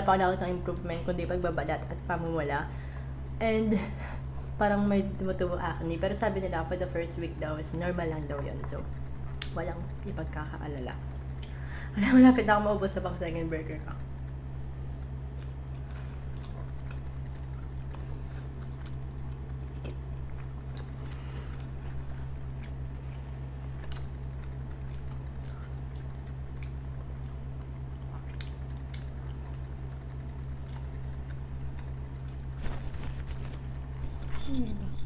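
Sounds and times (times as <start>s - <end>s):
steady low hum: 0.0s - 35.0s
people chewing: 15.3s - 34.9s.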